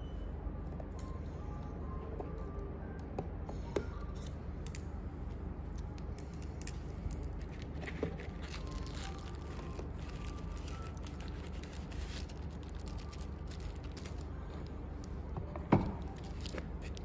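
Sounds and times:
steady low hum: 0.0s - 17.0s
bubble wrap rustling: 6.1s - 15.2s, 16.0s - 17.0s.

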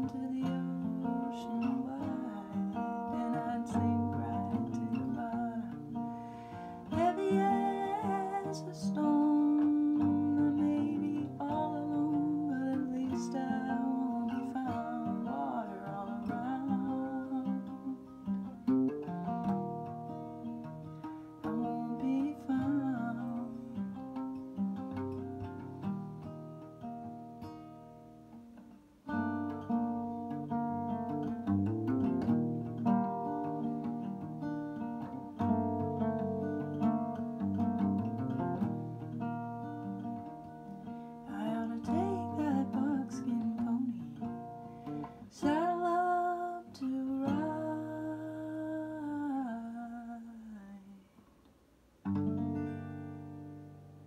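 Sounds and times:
wordless singing voice: 0.0s - 18.1s, 21.4s - 24.0s, 41.3s - 44.5s, 45.2s - 51.2s
acoustic guitar: 0.0s - 54.0s.

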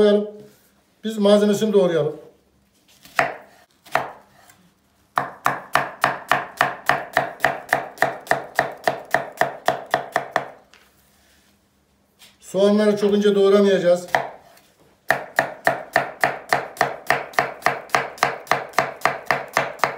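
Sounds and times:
knife chopping on wooden board: 3.0s - 4.6s, 5.2s - 10.6s, 14.1s - 19.9s.

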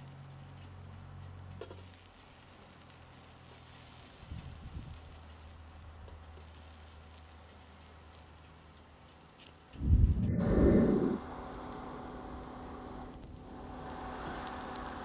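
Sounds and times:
meat sizzling on grill: 0.0s - 9.8s, 11.6s - 15.0s
steady low hum: 9.8s - 15.0s.

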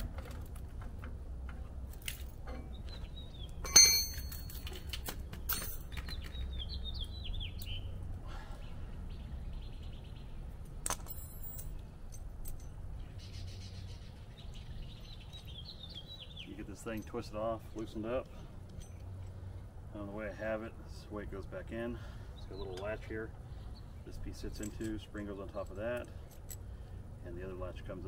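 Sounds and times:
birds chirping: 2.4s - 28.0s
metal clanking with ring: 3.6s - 4.9s, 5.5s - 5.9s, 10.9s - 12.9s, 18.7s - 19.3s, 24.4s - 26.7s.

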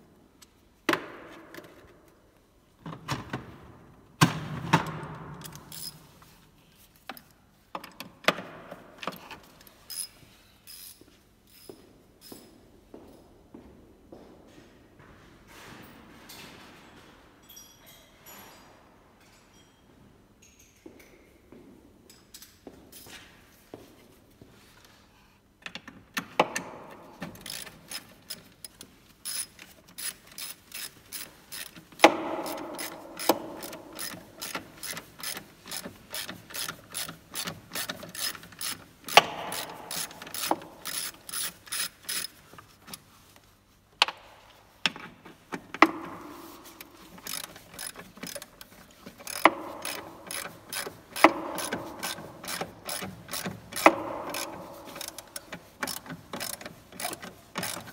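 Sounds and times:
socket ratchet clicking: 27.3s - 43.0s, 46.7s - 57.9s.

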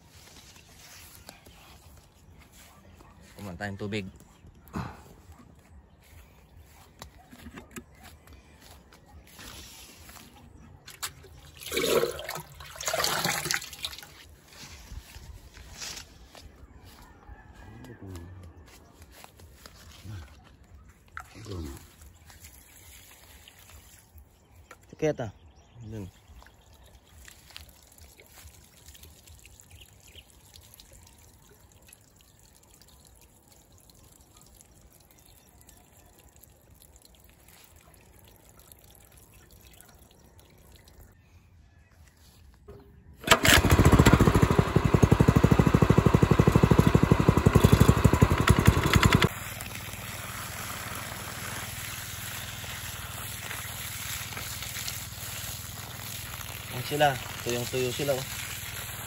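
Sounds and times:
water trickling into pump: 10.0s - 14.4s, 21.1s - 25.1s, 26.0s - 41.2s, 45.2s - 59.0s
water gushing from hose: 11.0s - 14.5s, 21.4s - 24.6s, 26.0s - 41.2s, 43.2s - 59.0s
pump engine running loudly: 43.2s - 59.0s.

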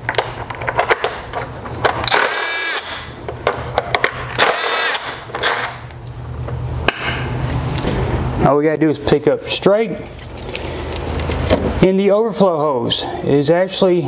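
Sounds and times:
power tool motor whine: 2.0s - 3.0s, 4.4s - 5.8s.

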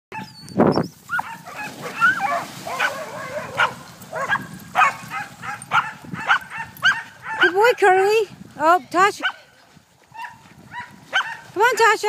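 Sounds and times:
dogs yipping and whining: 0.2s - 7.5s.

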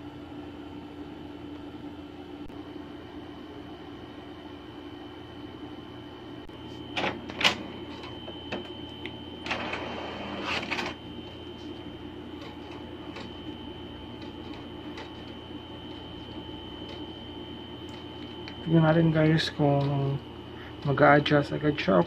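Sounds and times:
printer mechanism running: 6.9s - 22.0s.

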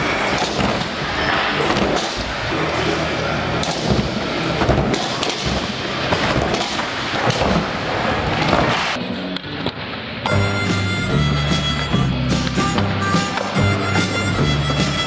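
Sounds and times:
skateboard striking ramp: 0.0s - 2.4s, 3.6s - 9.0s.

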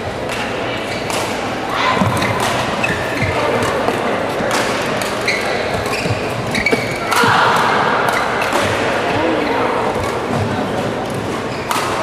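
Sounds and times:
echoing crowd noise: 0.0s - 12.0s
rackets smacking shuttlecock: 0.3s - 8.9s, 11.0s - 12.0s
shoes squeaking on court: 2.0s - 4.0s, 4.7s - 7.2s, 10.0s - 12.0s.

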